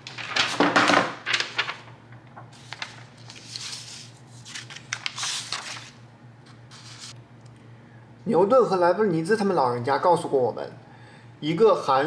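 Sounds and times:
paper rustling on a desk: 0.0s - 7.2s.

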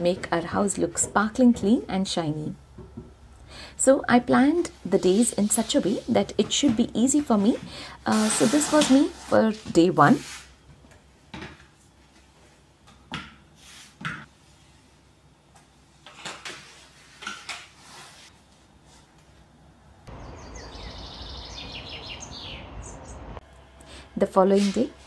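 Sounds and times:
small birds chirping: 20.1s - 23.4s.

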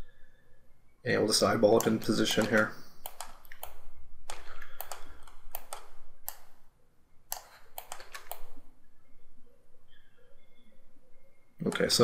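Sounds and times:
keyboard and mouse clicks: 1.7s - 6.6s, 7.3s - 8.6s, 11.6s - 12.0s.

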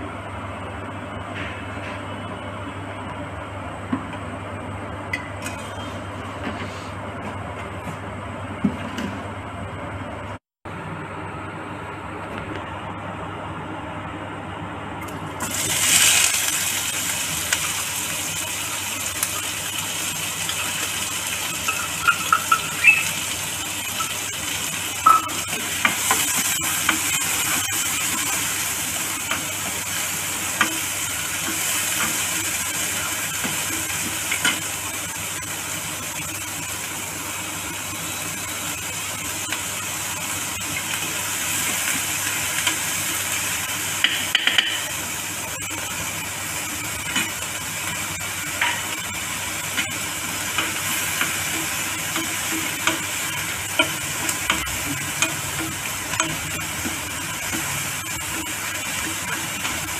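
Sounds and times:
onions sizzling in oil: 15.2s - 59.9s.

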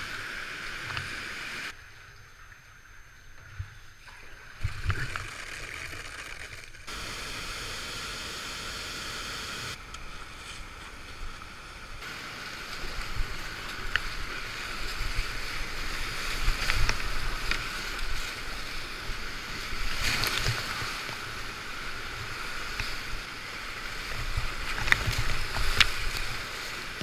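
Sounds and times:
waves and paddle splashes: 9.8s - 27.0s.

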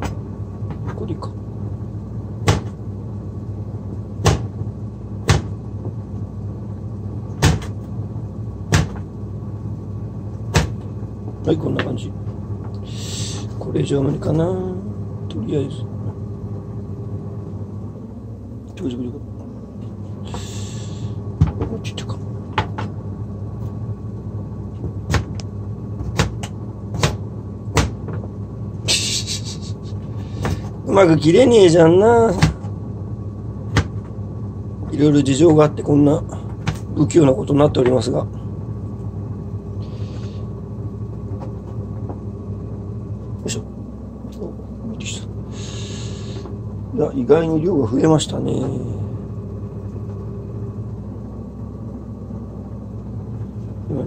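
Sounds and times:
steady low hum: 0.0s - 54.0s
knife chopping on cutting board: 8.7s - 9.0s, 10.5s - 10.8s, 26.0s - 28.0s.

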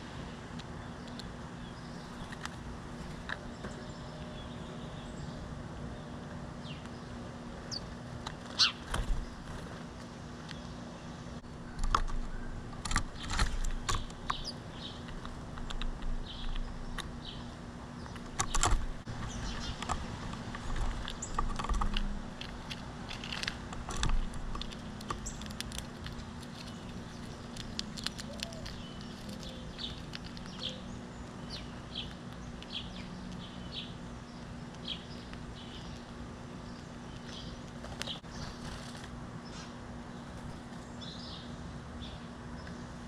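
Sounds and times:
steady low hum: 0.0s - 43.0s
bird chirping: 3.4s - 9.6s, 10.5s - 20.0s, 24.2s - 43.0s
animals feeding on wooden tray: 18.0s - 39.2s.

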